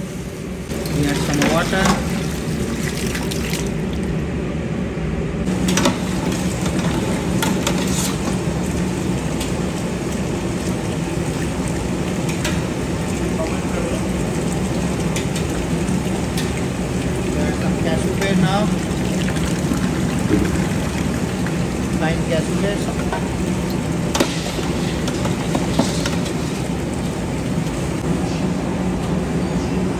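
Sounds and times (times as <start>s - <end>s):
tap water running into pot: 5.7s - 27.8s.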